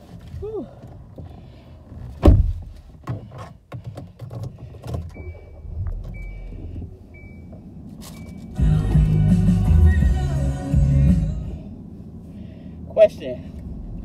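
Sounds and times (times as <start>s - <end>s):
knocks and rustling inside car: 0.0s - 8.6s
heavy thump: 2.1s - 3.2s
car warning chime beeping: 5.1s - 9.1s.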